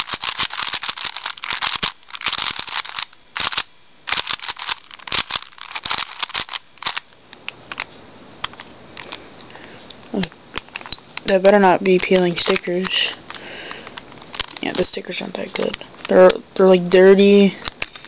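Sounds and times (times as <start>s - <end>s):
puzzle cube clicking: 0.0s - 9.2s, 10.5s - 13.2s.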